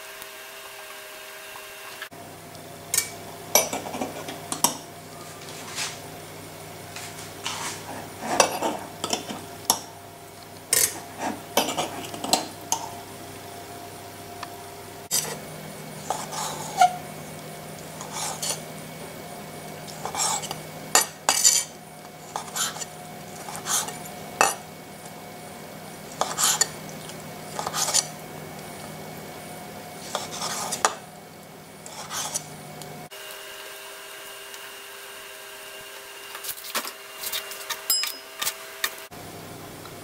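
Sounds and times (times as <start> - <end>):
knife scraping in glass jar: 15.1 - 15.4, 16.0 - 17.0, 18.0 - 18.6, 20.0 - 24.6, 26.1 - 26.8, 27.5 - 28.1, 30.0 - 31.0, 31.8 - 32.5.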